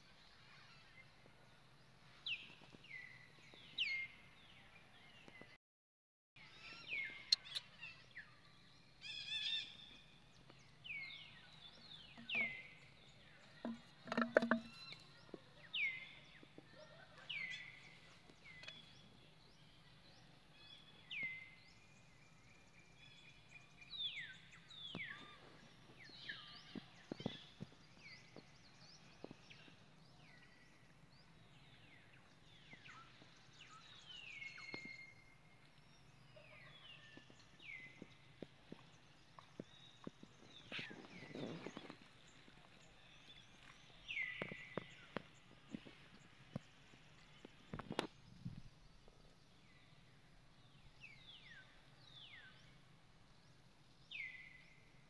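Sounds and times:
soft knocks and rustles: 13.6s - 14.8s.

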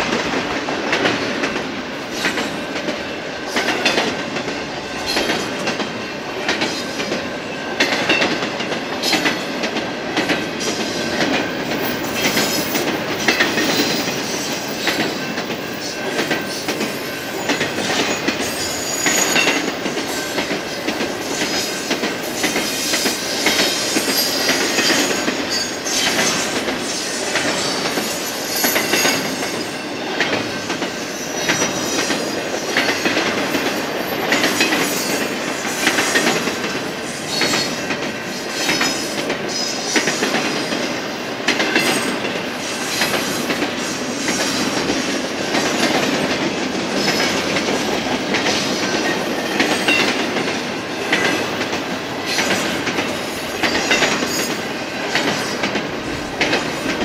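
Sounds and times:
train wheels rumbling on rails: 0.0s - 57.0s
wheels clacking over rail joints: 0.0s - 57.0s
high wheel squeal: 16.5s - 19.6s.

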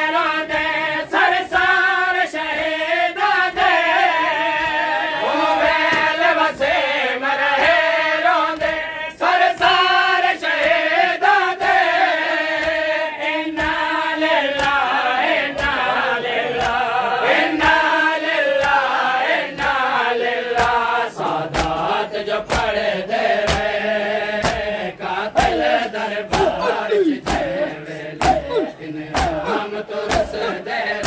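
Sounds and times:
men chanting in unison: 0.0s - 31.0s
chest-beating slaps: 4.5s - 6.8s, 12.3s - 15.9s, 16.5s - 17.9s, 18.5s - 31.0s.

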